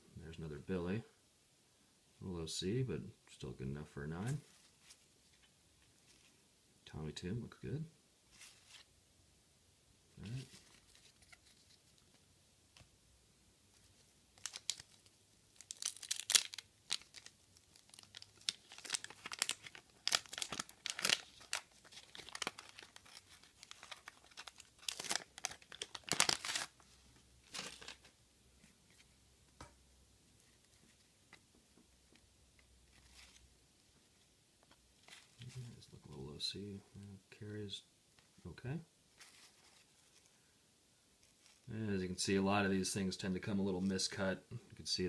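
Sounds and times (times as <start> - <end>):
handling of stiff cards: 10.2 - 12.9, 13.7 - 29.7, 30.4 - 35.8, 39.1 - 40.4
wax paper wrapper tearing and crinkling: 14.3 - 28.1.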